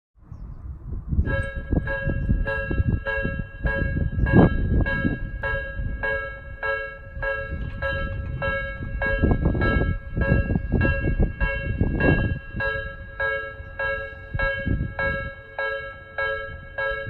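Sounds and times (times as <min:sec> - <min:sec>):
loud low rumble: 0:00.6 - 0:15.6
level crossing alarm dinging: 0:01.3 - 0:17.0.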